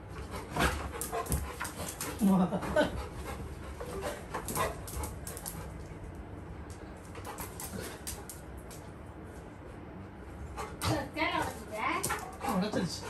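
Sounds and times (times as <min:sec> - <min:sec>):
paws knocking and clicking: 0:00.2 - 0:02.2, 0:02.8 - 0:06.0, 0:10.6 - 0:12.7.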